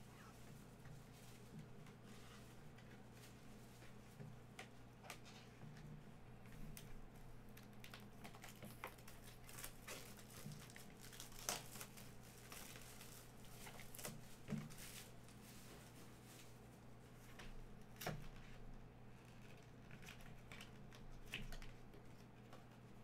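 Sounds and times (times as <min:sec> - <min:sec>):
plastic and paper packaging crinkling: 0:06.5 - 0:18.4.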